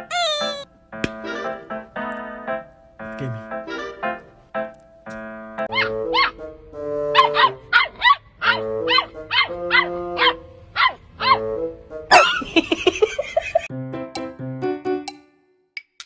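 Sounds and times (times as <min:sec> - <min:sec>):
puppy yipping: 0:00.0 - 0:00.7, 0:05.7 - 0:06.4, 0:07.2 - 0:11.4.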